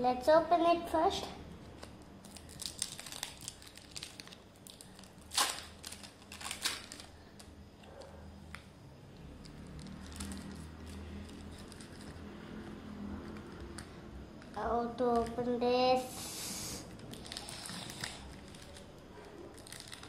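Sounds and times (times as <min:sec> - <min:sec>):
faint low hum: 0:00.0 - 0:20.0
plastic wrapper crinkling: 0:01.6 - 0:08.6, 0:09.3 - 0:12.3, 0:16.9 - 0:20.0.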